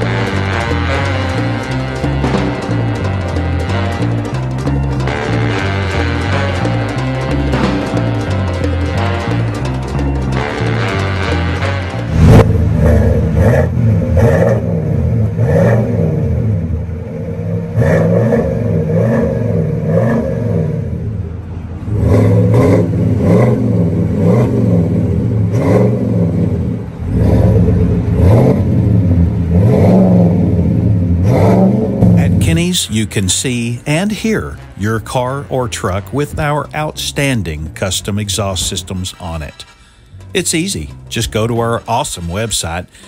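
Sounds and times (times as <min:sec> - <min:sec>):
engine revving in short blips: 0:00.0 - 0:21.1, 0:21.8 - 0:32.4.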